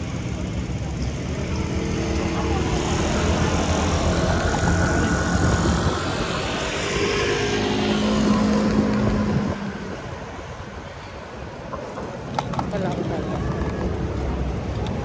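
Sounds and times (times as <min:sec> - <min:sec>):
low engine hum: 0:00.0 - 0:11.0
scooter and car engines passing: 0:00.0 - 0:15.0.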